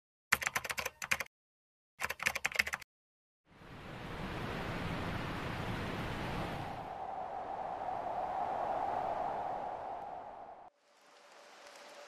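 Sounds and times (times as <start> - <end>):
rapid typewriter clicking: 0.3 - 1.3, 2.0 - 2.8
falling water rushing: 10.4 - 12.0.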